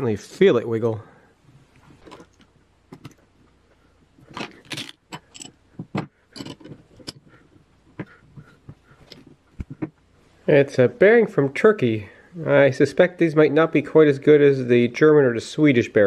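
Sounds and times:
metal clinks and rattles: 0:04.3 - 0:07.3.

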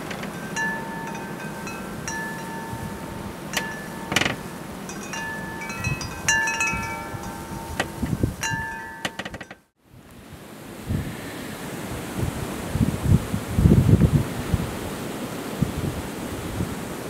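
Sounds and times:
wind rushing: 0:00.0 - 0:09.1
metal tube wind chime ringing: 0:00.0 - 0:09.6.

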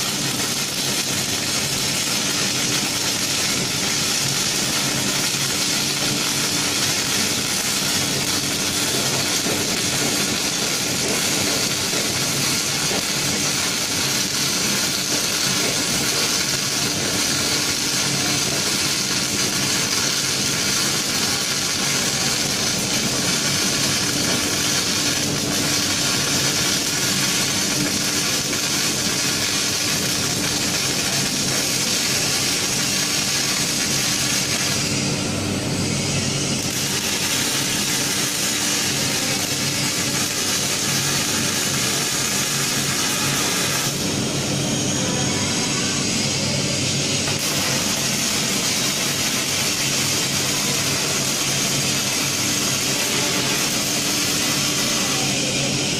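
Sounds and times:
welding arc hissing: 0:00.0 - 0:55.9.

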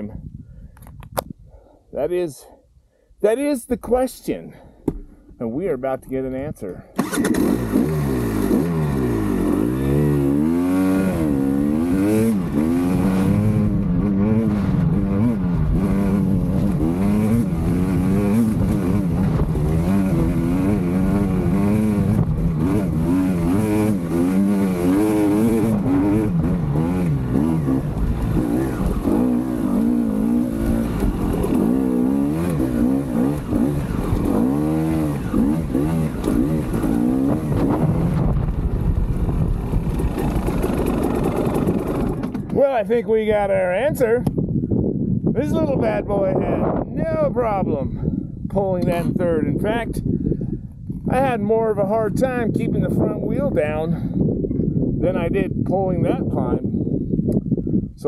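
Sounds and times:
dirt bike engine revving: 0:07.0 - 0:38.5, 0:39.7 - 0:42.5.

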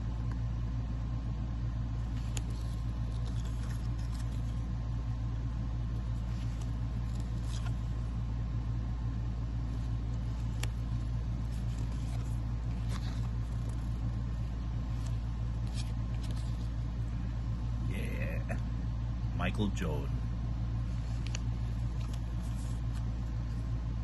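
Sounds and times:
steady low hum: 0:00.0 - 0:24.0
trading cards sliding and flipping: 0:02.0 - 0:04.8, 0:05.6 - 0:08.2, 0:09.4 - 0:17.8, 0:20.8 - 0:24.0.

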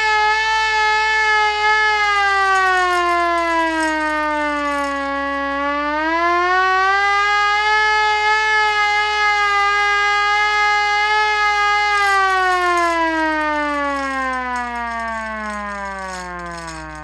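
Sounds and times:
hand-cranked siren wailing: 0:00.0 - 0:17.0.

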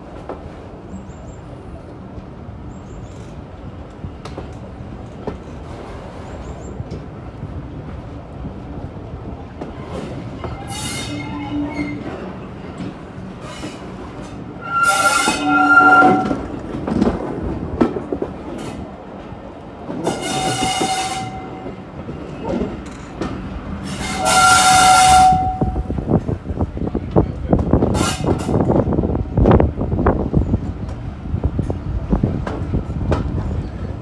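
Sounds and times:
shrill horn blasts: 0:14.6 - 0:16.5, 0:20.2 - 0:21.7, 0:24.0 - 0:26.0.

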